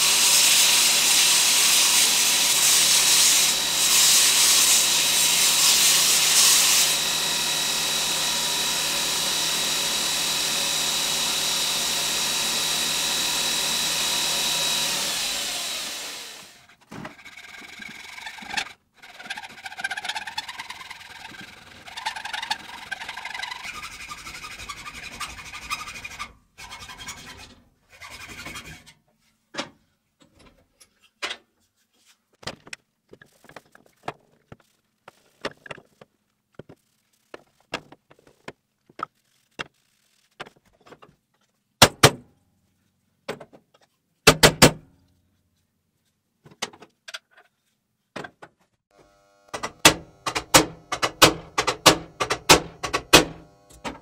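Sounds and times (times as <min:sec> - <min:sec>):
hacksaw cutting wood: 0:00.0 - 0:28.9, 0:49.0 - 0:54.0
tools clicking and knocking: 0:49.5 - 0:54.0.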